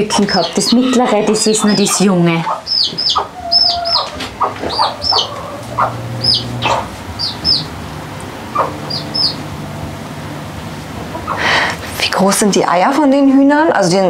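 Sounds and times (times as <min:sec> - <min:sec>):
chicks peeping: 0:00.0 - 0:10.2, 0:11.0 - 0:11.8
hen clucking: 0:00.0 - 0:12.0.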